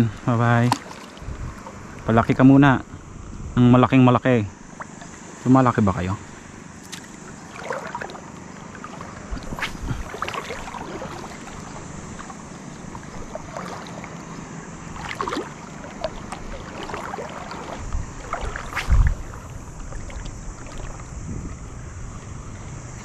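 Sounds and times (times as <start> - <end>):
water lapping: 0.0 - 3.2, 4.6 - 23.0
wind on microphone: 0.0 - 4.0, 9.2 - 13.7, 16.0 - 23.0.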